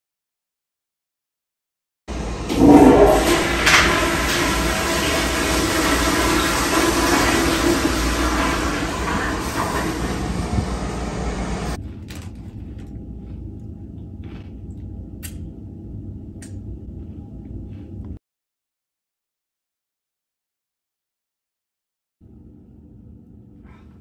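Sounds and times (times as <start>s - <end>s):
toilet flushing: 2.1s - 11.8s.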